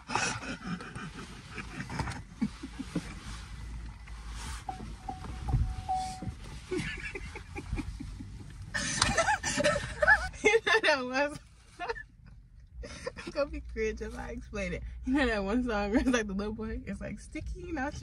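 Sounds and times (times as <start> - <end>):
car low rumble: 0.0 - 18.0
people laughing: 6.7 - 10.7.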